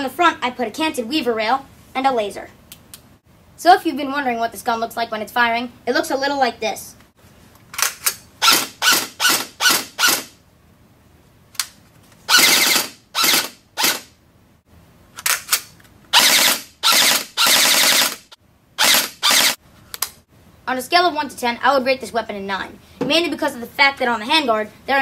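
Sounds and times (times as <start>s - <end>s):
airsoft rifle full-auto bursts: 8.4s - 10.3s, 12.3s - 14.1s, 16.1s - 19.6s.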